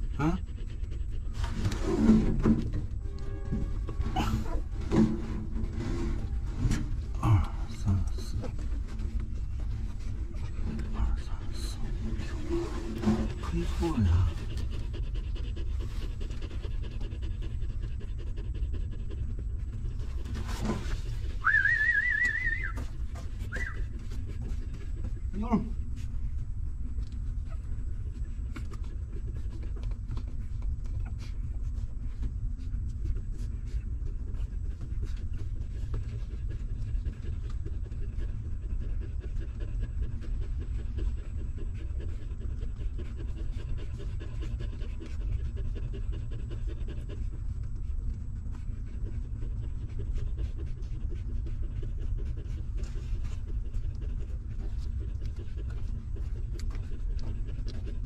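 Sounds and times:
dog panting: 0:00.0 - 0:58.0
puppies suckling clicks: 0:14.0 - 0:20.4, 0:26.8 - 0:58.0.

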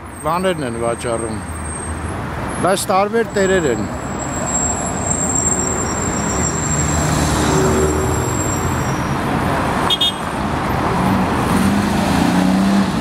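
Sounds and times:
cars driving past: 0:00.0 - 0:13.0
high-pitched squeak: 0:04.2 - 0:09.3.

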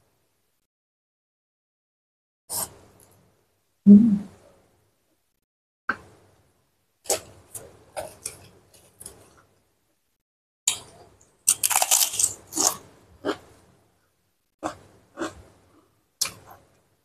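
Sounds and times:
crunching cracker chewing: 0:10.7 - 0:13.4
crackers crackling in plastic bag: 0:11.5 - 0:12.8.

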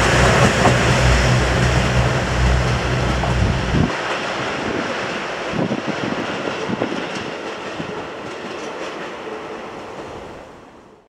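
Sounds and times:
diesel train rumbling past: 0:00.0 - 0:10.8.

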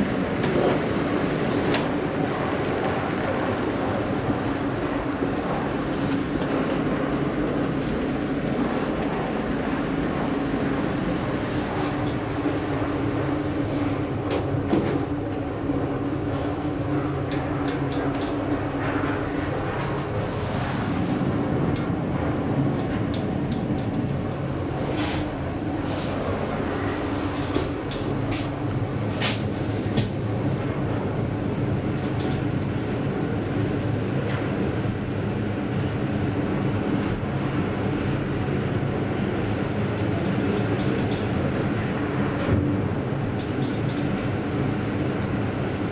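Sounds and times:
elevator drive hum: 0:00.0 - 0:45.9.

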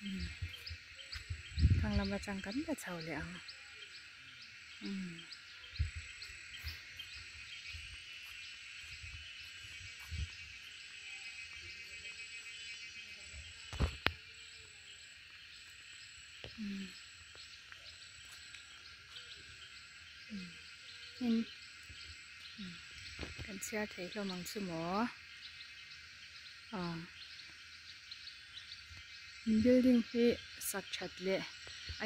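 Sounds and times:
insects chirring: 0:00.0 - 0:32.0.

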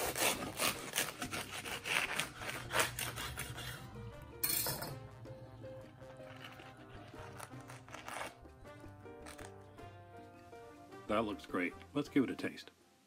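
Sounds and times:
knife sawing through toasted crust: 0:00.0 - 0:04.0, 0:06.1 - 0:08.4.

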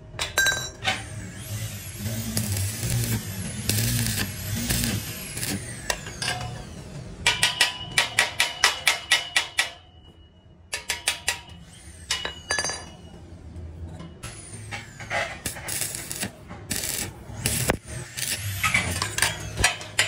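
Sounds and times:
welding arc crackling and hissing: 0:01.1 - 0:06.0, 0:15.4 - 0:20.0
hammer tapping on metal: 0:07.2 - 0:10.0.

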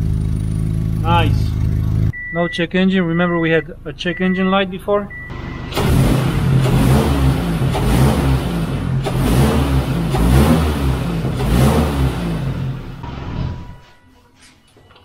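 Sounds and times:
car engine revving: 0:05.3 - 0:13.7.

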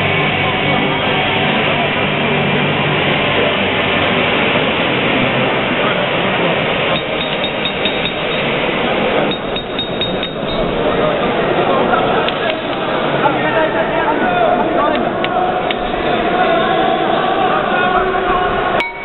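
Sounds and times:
arena crowd noise: 0:00.0 - 0:19.0
sharp metallic clinks: 0:06.9 - 0:08.7, 0:09.3 - 0:10.8.

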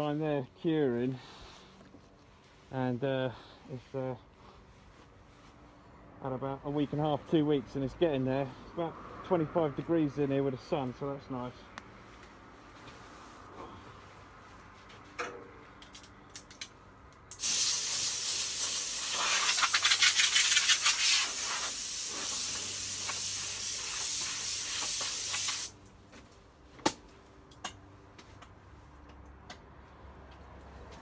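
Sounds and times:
spray gun air hissing: 0:17.4 - 0:25.8.

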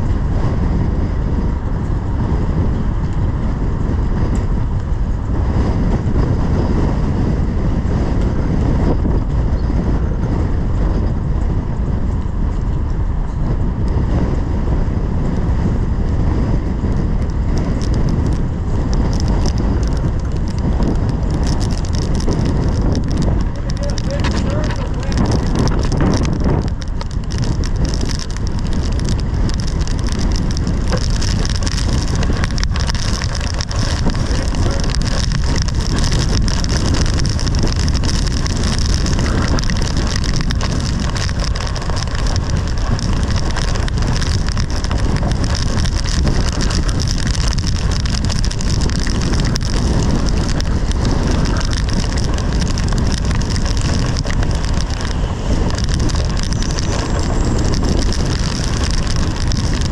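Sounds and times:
strong gusting wind: 0:00.0 - 0:59.9
rain and hail beating on vehicle: 0:16.2 - 0:59.9.

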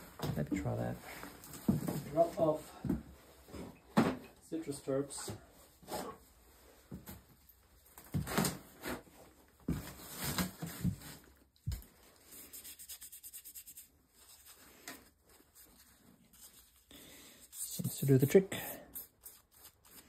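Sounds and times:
paper towel rubbing on metal: 0:12.4 - 0:14.8, 0:15.5 - 0:20.0.

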